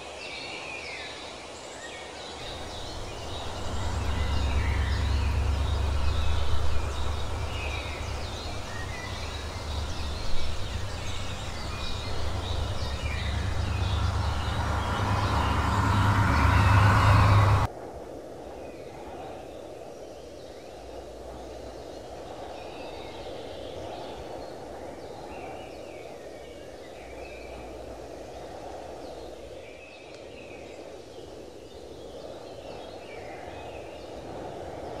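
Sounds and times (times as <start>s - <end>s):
birds chirping: 2.4s - 17.7s
low rushing noise: 2.4s - 17.7s.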